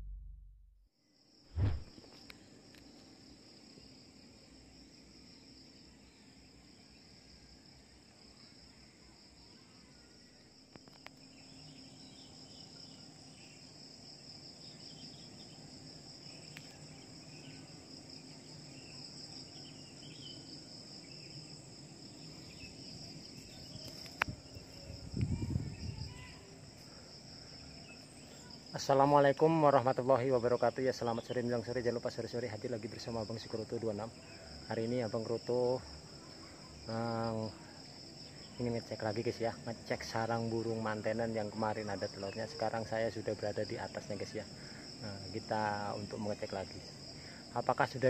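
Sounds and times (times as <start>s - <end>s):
short low noise: 0.0s - 0.8s, 1.5s - 1.9s
insect chorus drone: 0.9s - 48.0s
click: 16.5s - 16.8s.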